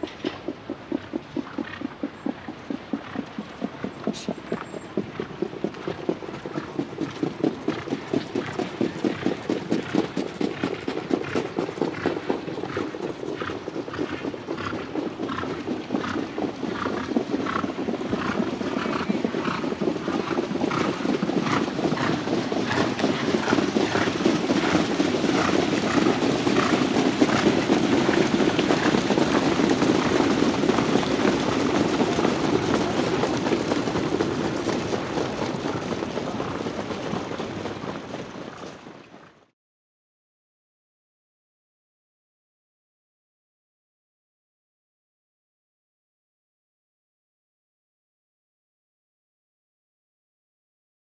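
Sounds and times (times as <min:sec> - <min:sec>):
trotting hoofbeats: 0:00.0 - 0:39.5.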